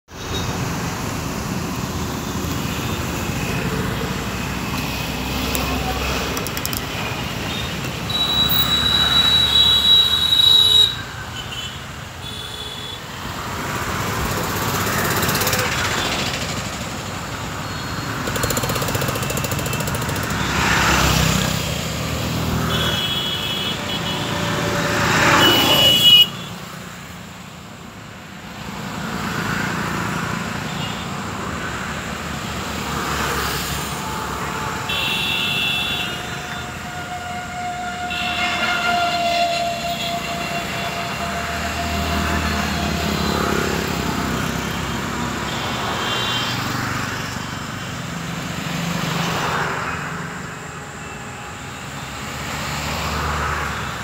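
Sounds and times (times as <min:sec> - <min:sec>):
vehicles passing by: 0:00.1 - 0:54.0.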